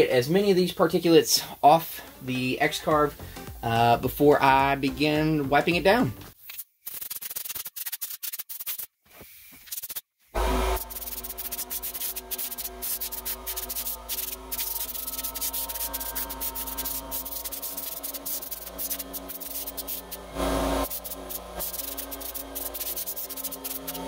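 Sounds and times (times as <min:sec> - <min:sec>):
compressed air hissing: 0:06.8 - 0:24.0.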